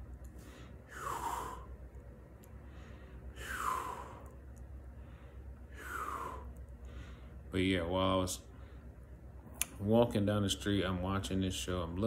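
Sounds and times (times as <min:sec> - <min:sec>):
man breathing heavily: 0:00.3 - 0:07.5.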